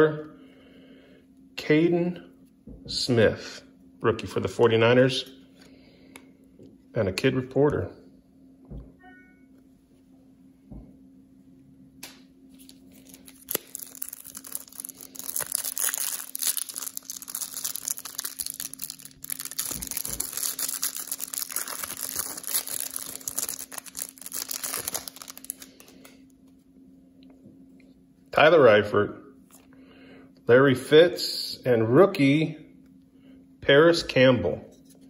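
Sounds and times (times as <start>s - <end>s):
wrapper crinkling and tearing: 12.5s - 26.2s.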